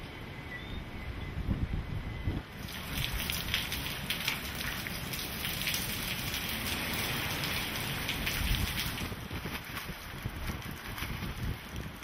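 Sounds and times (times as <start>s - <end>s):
wind gusts on microphone: 0.7s - 12.0s
heavy rain on wet pavement: 2.5s - 12.0s.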